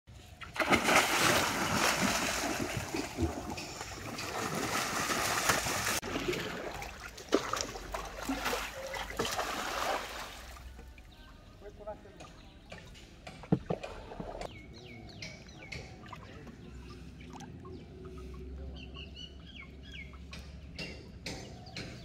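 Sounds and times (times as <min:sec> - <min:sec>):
water splashing off a net: 0:00.4 - 0:10.6
water lapping: 0:00.4 - 0:21.3.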